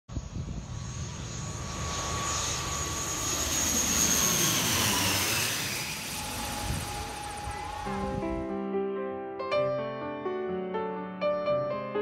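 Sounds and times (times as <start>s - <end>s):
turboprop plane passing overhead: 0.1s - 8.5s.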